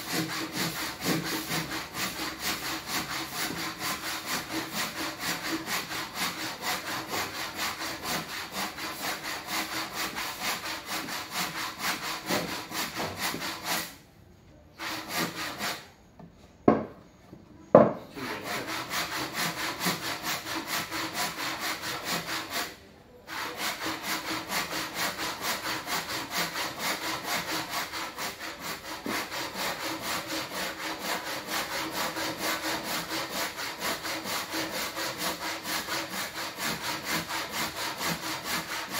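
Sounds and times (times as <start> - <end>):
hand saw cutting wood: 0.0 - 14.0, 14.8 - 15.9, 18.1 - 38.9
sharp knocks: 16.7 - 17.0, 17.7 - 18.0.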